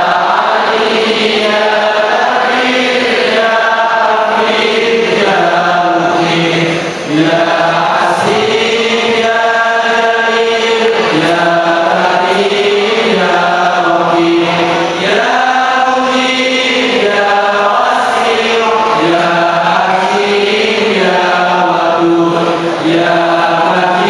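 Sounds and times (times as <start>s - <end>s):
voices chanting together: 0.0s - 24.0s.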